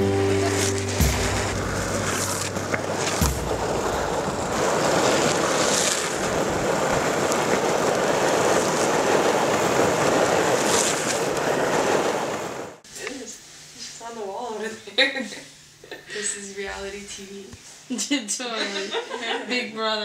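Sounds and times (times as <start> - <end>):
longboard wheels rolling on asphalt: 0.0 - 12.8
wind rushing over microphone: 1.0 - 12.8.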